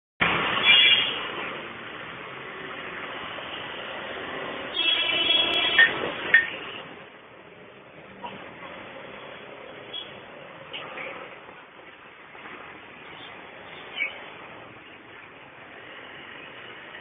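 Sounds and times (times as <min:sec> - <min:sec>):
street traffic: 0:00.2 - 0:17.0.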